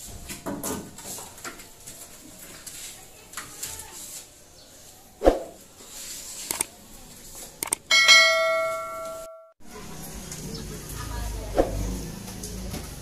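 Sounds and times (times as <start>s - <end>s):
short clicks: 6.5s - 6.7s, 7.6s - 7.8s
bright bell chime: 7.9s - 9.6s.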